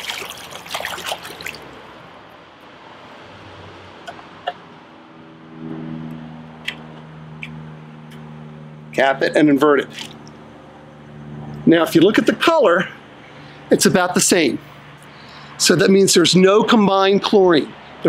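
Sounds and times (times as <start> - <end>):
water splashing: 0.0 - 2.1, 9.8 - 10.4.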